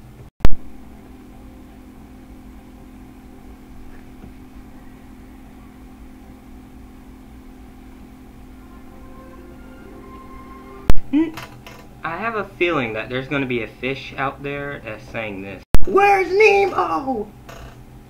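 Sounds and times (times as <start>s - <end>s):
muffled low drone from tv: 3.4s - 13.6s.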